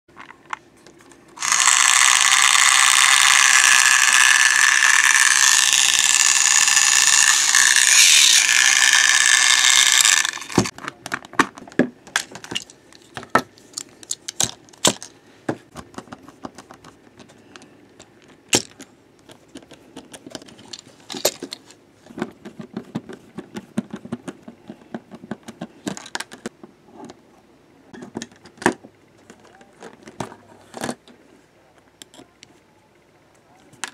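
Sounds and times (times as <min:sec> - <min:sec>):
small screwdriver on motor housing: 0:01.4 - 0:10.7
toy train motor grinding whirr: 0:01.4 - 0:10.7.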